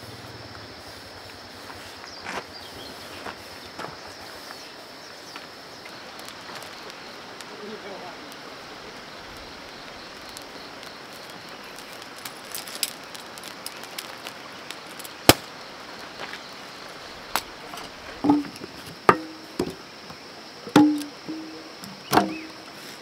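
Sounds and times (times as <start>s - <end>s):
steady background hiss: 0.0s - 23.0s
metal tins knocking and clinking: 18.2s - 19.8s, 20.7s - 22.5s.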